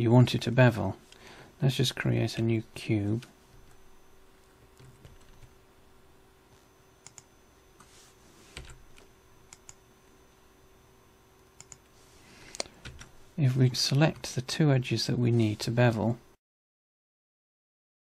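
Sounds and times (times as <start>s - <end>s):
faint steady hum: 0.0s - 16.4s
keyboard keystrokes and mouse clicks: 4.6s - 5.6s, 7.0s - 7.3s, 8.6s - 9.8s, 11.4s - 11.9s, 12.5s - 13.1s.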